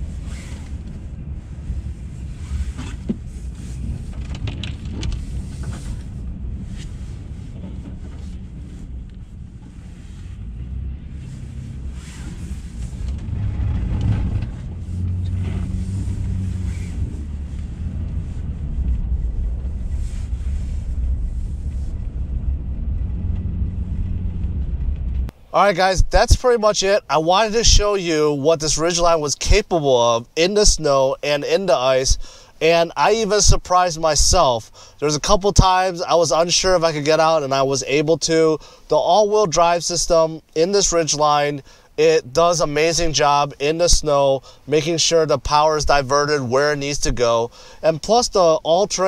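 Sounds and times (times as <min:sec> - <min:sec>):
tyres in snow: 0:00.0 - 0:25.5
car engine running: 0:00.7 - 0:25.3.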